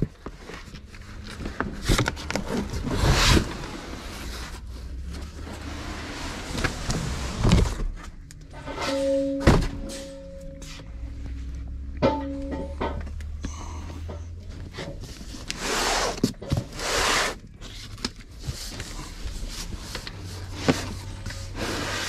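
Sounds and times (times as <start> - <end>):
cardboard box scraping: 1.3 - 8.0, 14.7 - 22.0.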